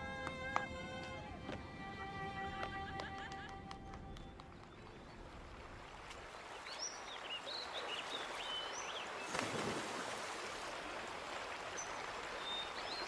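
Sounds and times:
creek water over rocks: 0:03.8 - 0:13.0.

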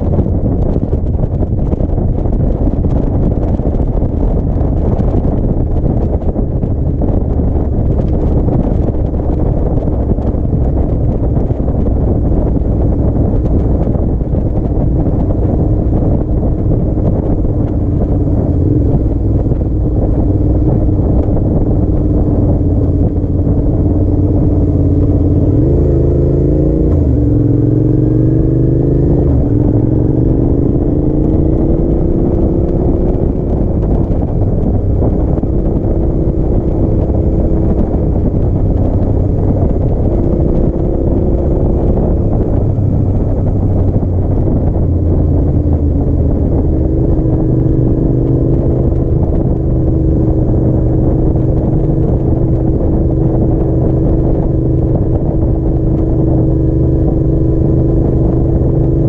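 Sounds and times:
motorcycle engine accelerating: 0:00.0 - 0:59.0
wind rumble on microphone: 0:00.0 - 0:59.0.

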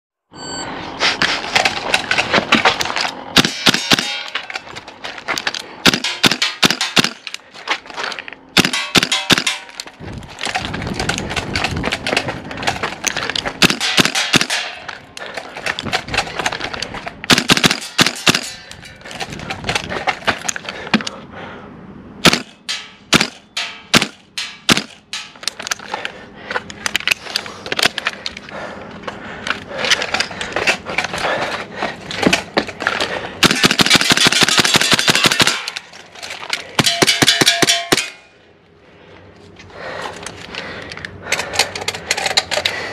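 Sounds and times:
airsoft rifle shots: 0:03.4 - 0:04.4, 0:05.8 - 0:07.3, 0:08.6 - 0:09.8, 0:13.6 - 0:14.8, 0:17.3 - 0:18.6, 0:22.2 - 0:25.0, 0:33.4 - 0:35.8.

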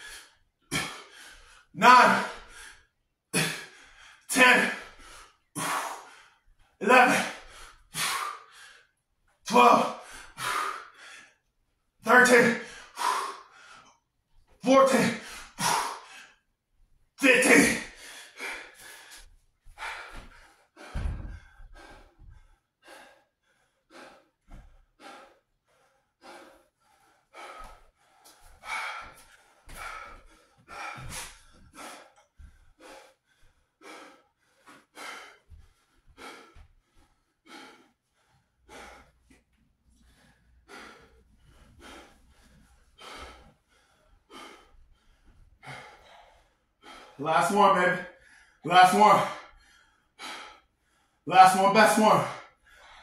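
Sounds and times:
man breathing hard and gasping: 0:00.0 - 0:16.5, 0:17.2 - 0:53.0
low thump: 0:21.0 - 0:21.5.

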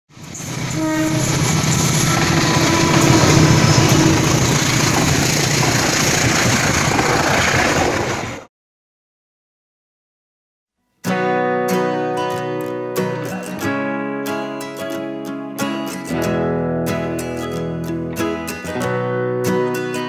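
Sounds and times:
train rumbling past on rails: 0:00.1 - 0:08.5
train horn note: 0:00.7 - 0:05.1.

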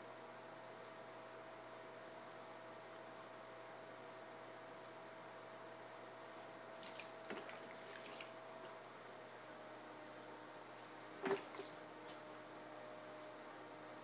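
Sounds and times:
wet clay drips and splashes: 0:06.8 - 0:08.3, 0:11.2 - 0:11.8.

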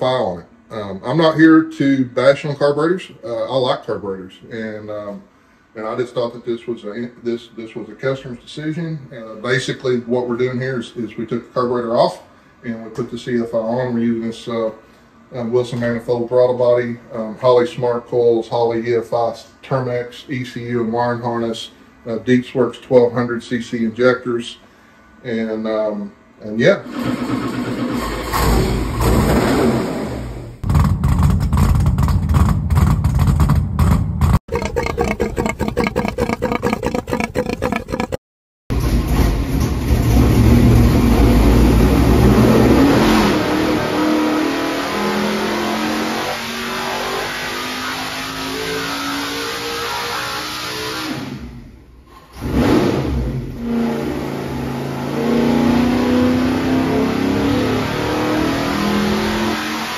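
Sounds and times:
engine running on dyno: 0:26.9 - 0:34.0, 0:38.7 - 0:51.7, 0:52.4 - 0:59.9.

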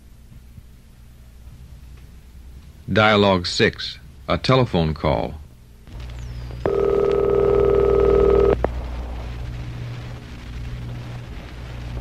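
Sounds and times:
low steady hum: 0:00.0 - 0:12.0
telephone ringing: 0:06.6 - 0:08.6.

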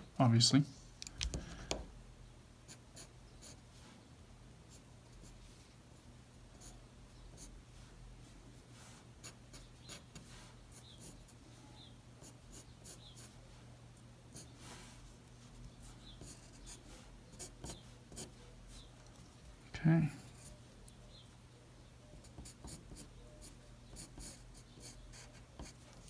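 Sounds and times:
pencil scratching on paper: 0:09.2 - 0:11.4, 0:12.2 - 0:13.3, 0:15.8 - 0:18.9, 0:22.2 - 0:26.0.

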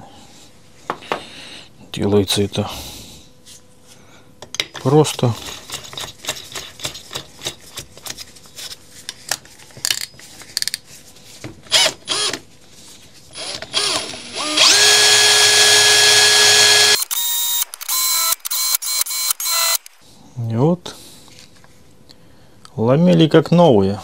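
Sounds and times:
cordless drill whining and grinding: 0:11.7 - 0:12.4, 0:13.3 - 0:19.9
rotor clicking in drill chuck: 0:13.4 - 0:20.0.

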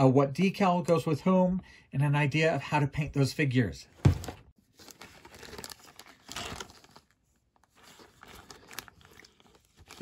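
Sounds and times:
plastic bag crinkling: 0:04.6 - 0:10.0.

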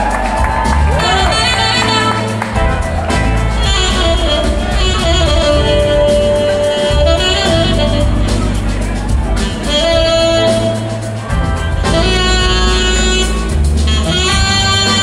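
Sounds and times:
live band music: 0:00.0 - 0:15.0
steady bass line: 0:00.0 - 0:15.0.

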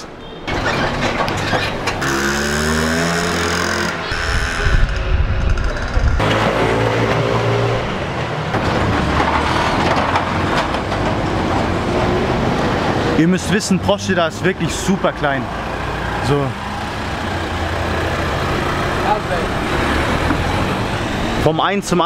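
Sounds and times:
car engines passing: 0:00.0 - 0:22.0
motor scooter engine revving: 0:02.0 - 0:08.0.

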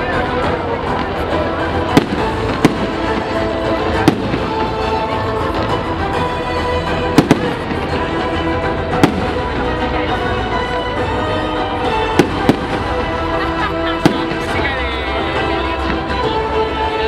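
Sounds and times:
fireworks din: 0:00.0 - 0:17.0
music playing: 0:00.0 - 0:17.0
fireworks sharp bangs: 0:01.8 - 0:05.7, 0:07.1 - 0:08.0, 0:09.0 - 0:09.6.

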